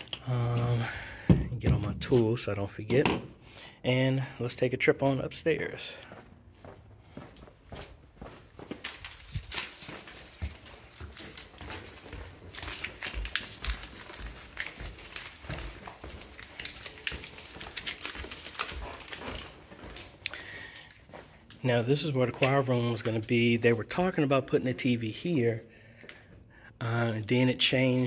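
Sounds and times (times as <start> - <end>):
footsteps on stairs: 6.0 - 20.2
gear clicking and rustling: 8.8 - 20.3.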